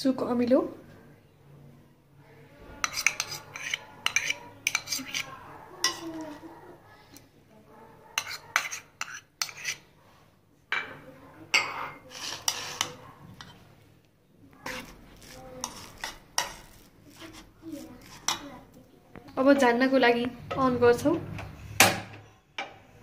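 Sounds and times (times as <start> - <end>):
spoon clinking and scraping bowl: 2.8 - 6.4, 8.2 - 9.9, 10.8 - 13.7, 14.6 - 18.6.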